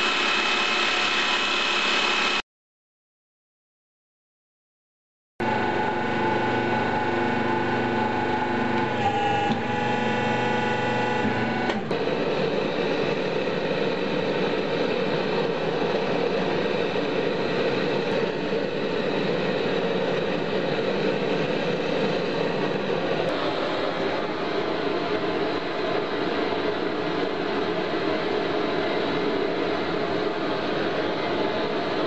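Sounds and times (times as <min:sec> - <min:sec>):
hydraulic press motor humming: 0:05.4 - 0:14.4.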